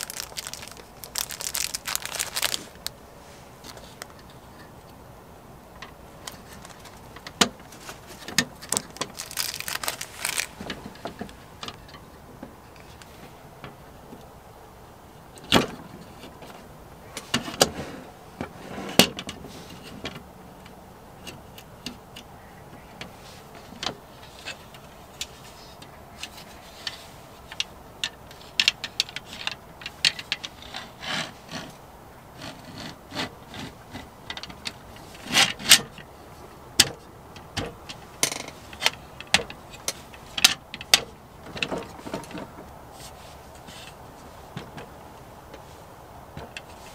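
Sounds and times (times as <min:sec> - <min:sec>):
rubbing: 0:00.0 - 0:04.3, 0:07.7 - 0:11.2.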